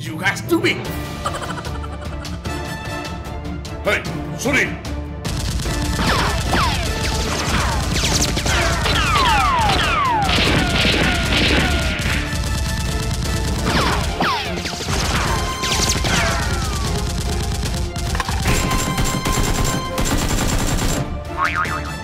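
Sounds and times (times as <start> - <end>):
gunshot bursts: 5.3 - 21.1.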